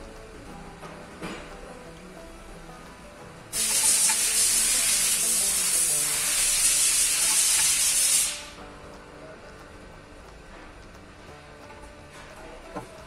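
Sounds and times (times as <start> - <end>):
background music: 0.0 - 13.0
pressurised spray hissing: 3.5 - 8.6.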